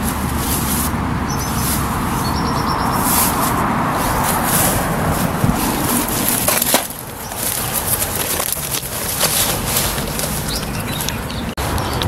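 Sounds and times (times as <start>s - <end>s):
twigs and leaves crackling underfoot: 0.0s - 12.0s
gear rustling into a bag: 3.0s - 11.2s.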